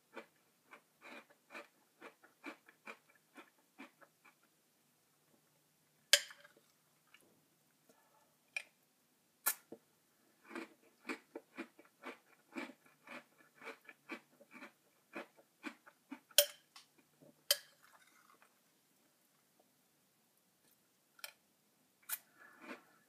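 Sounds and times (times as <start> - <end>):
crunchy cereal being chewed: 0.1 - 4.5, 10.4 - 16.4
metal spoon clinking on bowl: 16.4 - 16.6, 17.5 - 17.8.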